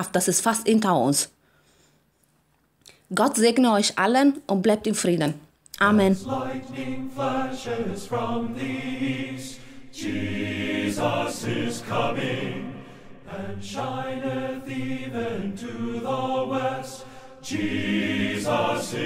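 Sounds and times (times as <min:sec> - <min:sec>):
choir singing held notes: 0:05.8 - 0:19.0.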